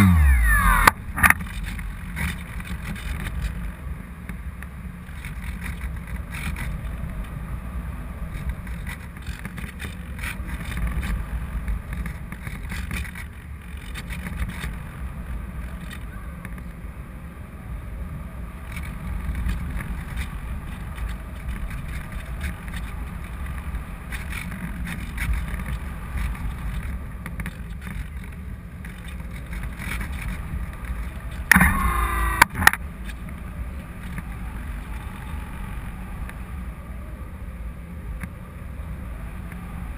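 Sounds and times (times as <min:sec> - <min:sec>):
electric motor whine: 0:00.0 - 0:01.0, 0:30.9 - 0:32.7.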